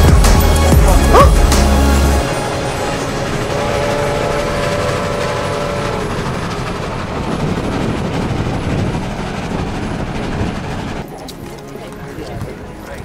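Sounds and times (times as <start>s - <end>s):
steam train rumbling: 0.0s - 13.0s
steady held tone: 2.4s - 7.4s.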